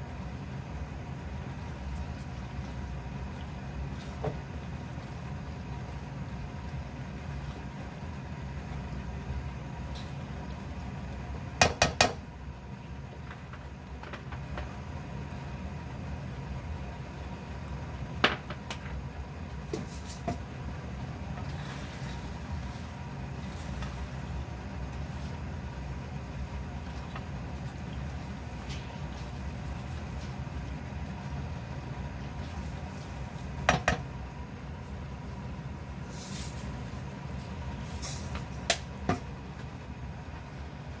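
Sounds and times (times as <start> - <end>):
low kitchen hum: 0.0 - 41.0
spatula knocking frying pan: 11.6 - 12.2, 33.6 - 34.0.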